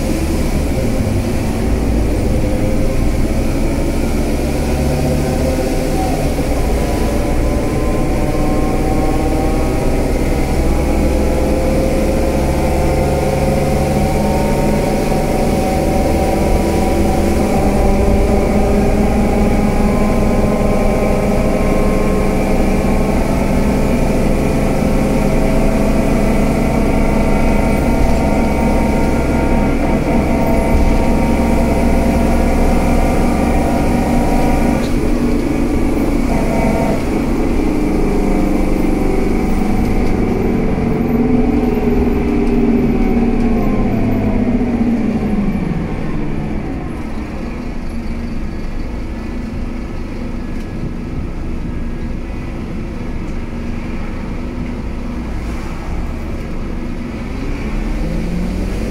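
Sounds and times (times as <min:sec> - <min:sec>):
bus diesel engine running: 0:00.0 - 0:58.9.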